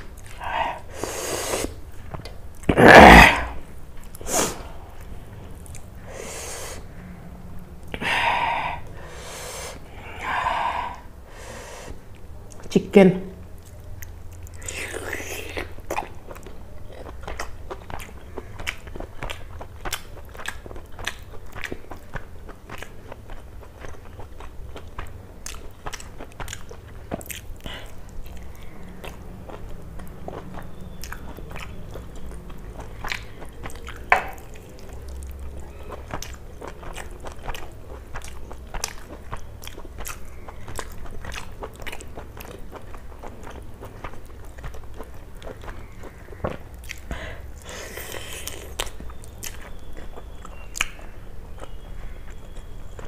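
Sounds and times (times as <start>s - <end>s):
chewing with wet mouth clicks: 0.0s - 0.4s, 12.1s - 12.7s, 13.5s - 53.0s.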